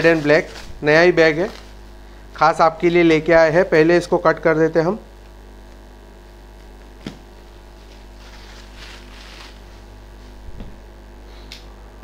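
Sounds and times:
plastic wrap crinkling: 0.0s - 1.8s, 7.0s - 10.4s
mains hum: 0.0s - 12.0s.

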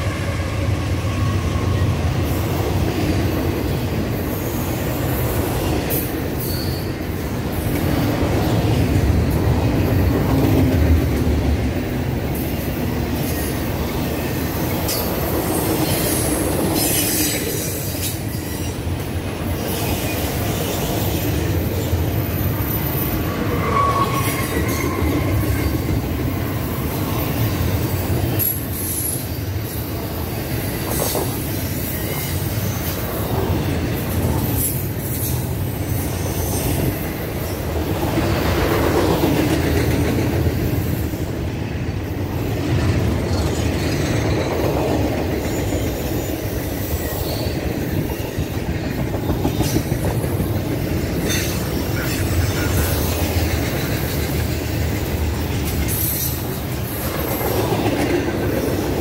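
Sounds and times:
train wheels rumbling on rail: 0.0s - 59.0s
high wheel squeals: 6.4s - 7.1s, 19.7s - 29.6s.

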